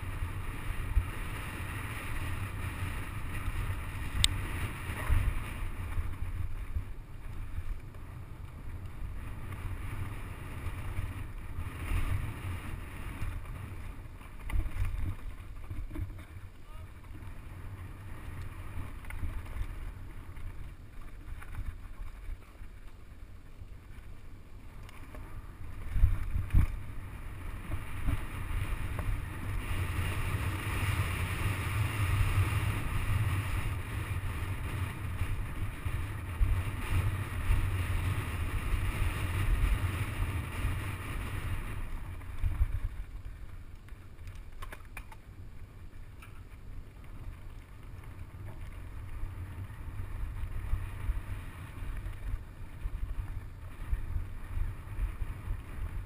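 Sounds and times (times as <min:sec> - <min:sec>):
bike tyres and frame rattling: 0:00.0 - 0:56.0
wind buffeting microphone: 0:25.5 - 0:43.6.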